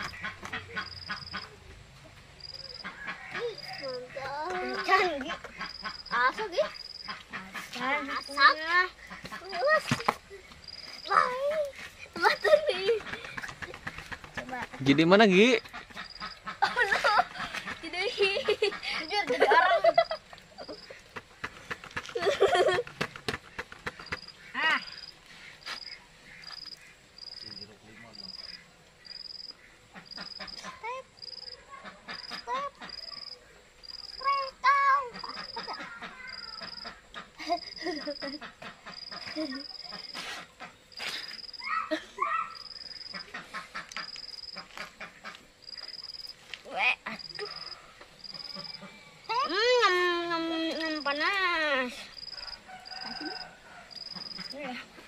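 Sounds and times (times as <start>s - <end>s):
child's voice: 3.4s - 5.4s, 11.1s - 13.0s, 34.2s - 36.8s.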